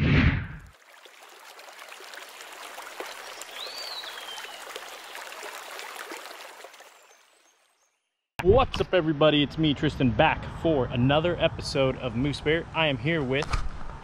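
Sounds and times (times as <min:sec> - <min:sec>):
creek water rushing: 0:00.7 - 0:07.5
bird whistle: 0:03.6 - 0:04.6.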